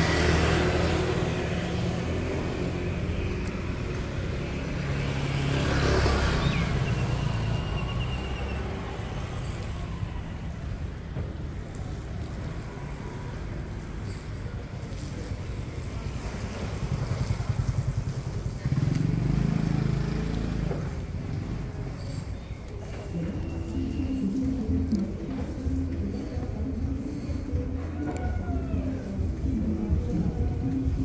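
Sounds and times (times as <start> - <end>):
vehicle engine passing close: 0.0 - 10.5, 15.5 - 23.8
motorbikes and cars passing: 0.0 - 31.0.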